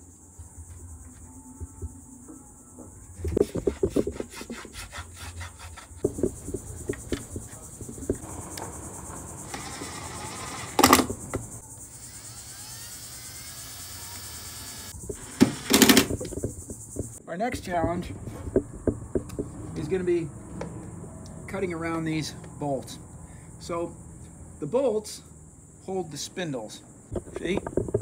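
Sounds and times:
high insect drone: 0.0 - 28.0
wood scrape: 3.2 - 11.4
wooden batten rubbing on wood: 3.3 - 8.3.

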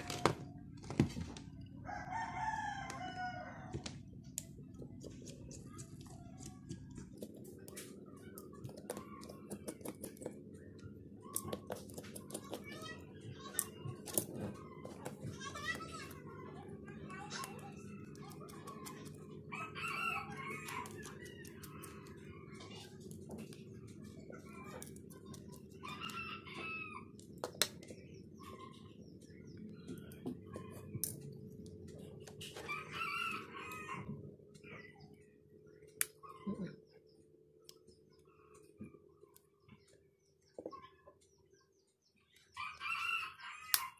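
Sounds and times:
steady low hum: 0.0 - 43.4
rooster crowing: 1.8 - 3.9, 19.5 - 21.2, 25.8 - 27.1, 32.6 - 34.2, 42.6 - 43.9.

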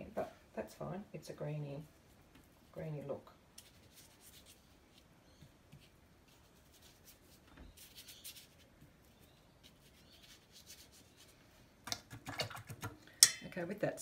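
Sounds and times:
paintbrush scratching on paper: 3.6 - 5.0, 5.8 - 11.3.

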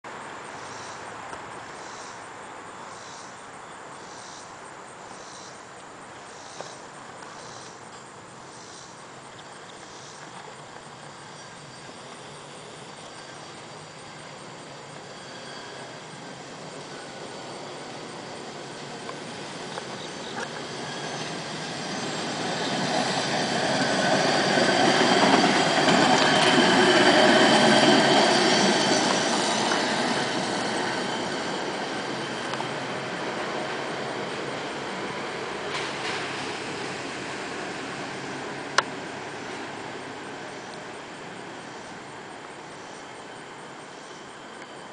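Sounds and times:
steady outdoor hiss: 0.0 - 44.9
insects buzzing in pulses: 0.2 - 44.9
faint high whine: 5.1 - 44.9
truck rolling on rail track: 5.2 - 44.9.

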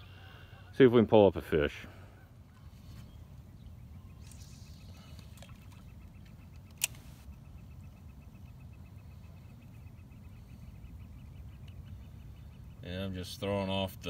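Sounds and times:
sharp click: 6.5 - 7.1.

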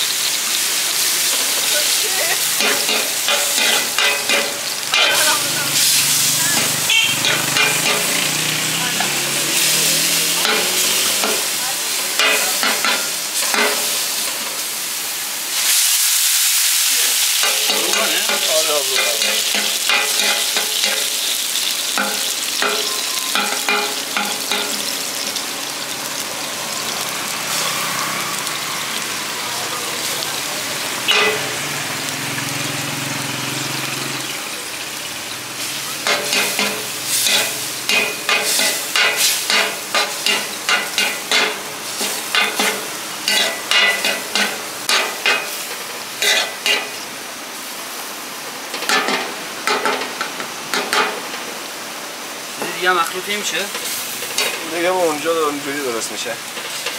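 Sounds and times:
meat sizzling on a griddle: 0.0 - 56.9
metal spatula scraping: 6.6 - 8.2, 31.1 - 31.5, 46.2 - 46.9.

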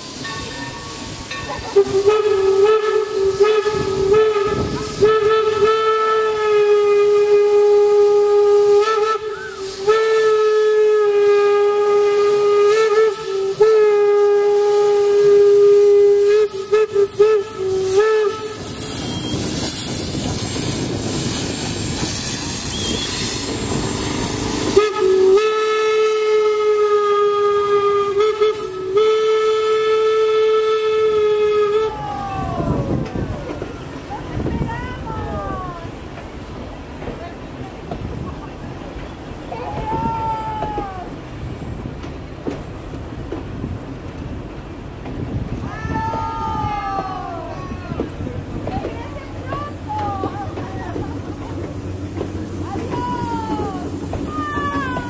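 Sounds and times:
steam locomotive whistle: 0.0 - 33.0, 51.2 - 55.0
rushing hiss of steam: 0.0 - 55.0.

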